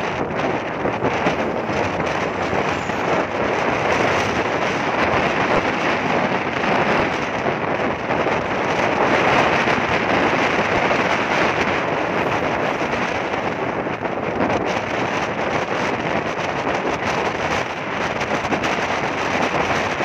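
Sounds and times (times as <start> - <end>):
motorcycle riding on road: 0.0 - 20.0
wind rush on microphone: 0.0 - 20.0.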